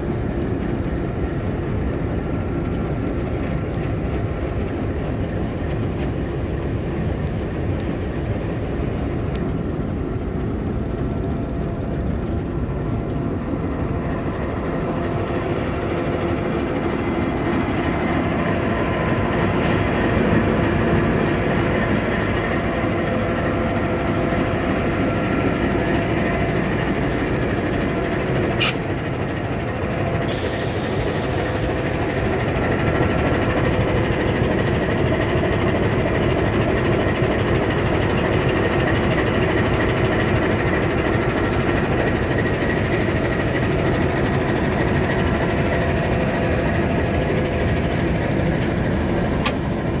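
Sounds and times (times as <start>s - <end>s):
locomotive diesel engine idling: 6.8s - 50.0s
sharp click: 28.5s - 28.8s.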